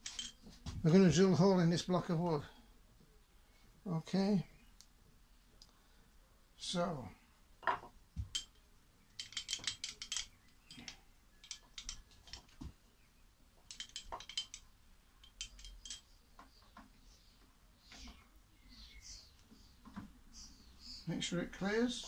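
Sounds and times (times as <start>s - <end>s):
metallic clicking and clinking: 0.0s - 0.5s, 8.2s - 12.7s, 13.6s - 16.2s.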